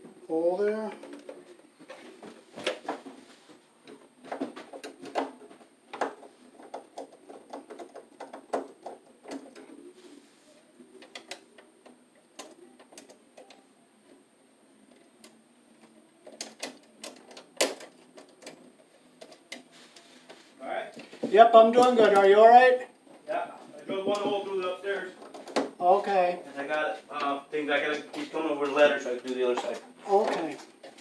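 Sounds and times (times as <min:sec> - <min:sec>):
wire strippers clicking and scraping: 0:03.8 - 0:09.8, 0:10.9 - 0:14.2, 0:14.9 - 0:25.8.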